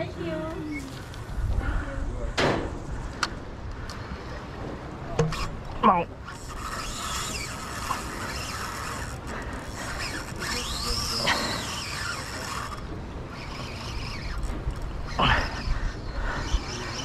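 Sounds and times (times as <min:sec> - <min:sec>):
fishing reel ratcheting: 0:06.2 - 0:17.0.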